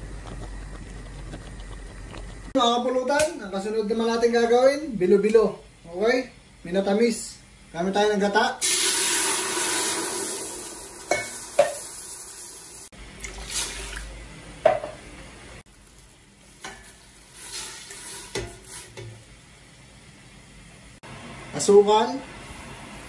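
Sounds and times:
liquid pouring into pot: 0:08.6 - 0:10.8, 0:13.1 - 0:14.1.

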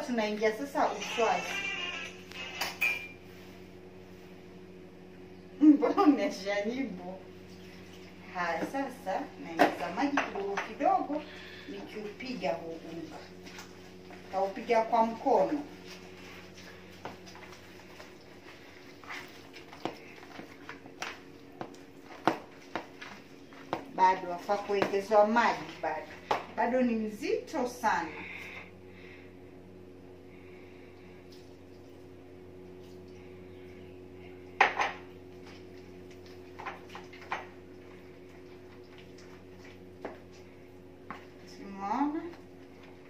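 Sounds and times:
faint steady hum: 0:00.0 - 0:43.0
hand slapping wet dough: 0:19.0 - 0:24.0.

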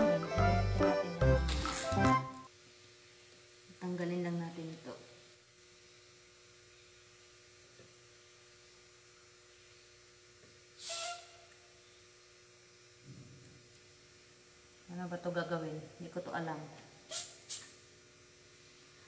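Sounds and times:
faint steady hum: 0:00.0 - 0:19.0
air hissing from tyre valve: 0:10.8 - 0:12.0, 0:17.1 - 0:17.8.

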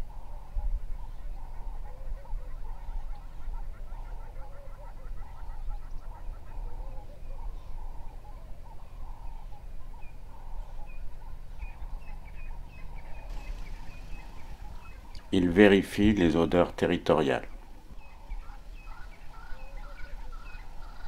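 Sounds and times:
birds calling: 0:00.0 - 0:21.0
high bird chirps: 0:11.7 - 0:15.4.

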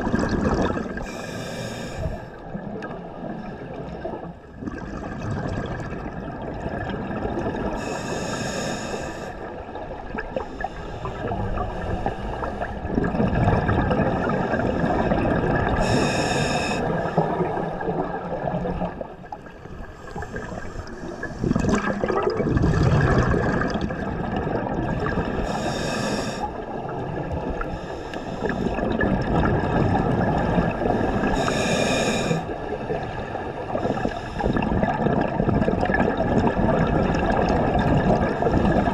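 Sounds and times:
bubbling exhale: 0:00.0 - 0:02.3, 0:19.8 - 0:24.4, 0:27.8 - 0:32.6
hissing regulator inhales: 0:01.0 - 0:02.4, 0:07.8 - 0:09.4, 0:15.8 - 0:17.2, 0:25.4 - 0:26.6, 0:31.0 - 0:32.5.

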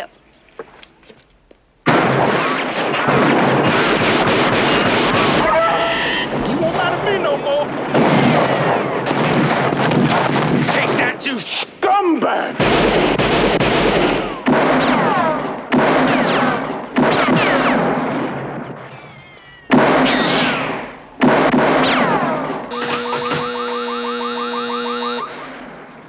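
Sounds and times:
falling whine: 0:21.8 - 0:25.8
shooting-range buzzer: 0:22.7 - 0:25.3.

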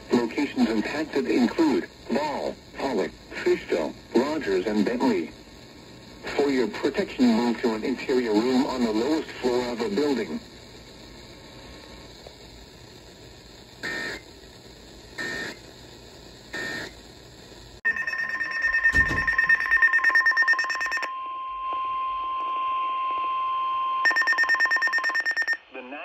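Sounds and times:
rapid pulsing beeps: 0:17.9 - 0:21.1, 0:24.0 - 0:25.6
steady warning alarm tone: 0:17.9 - 0:25.6.

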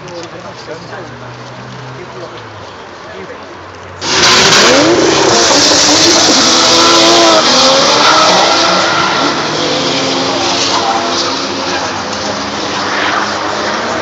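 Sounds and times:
car engine revving hard: 0:04.0 - 0:14.0
tyres screeching: 0:04.0 - 0:14.0.

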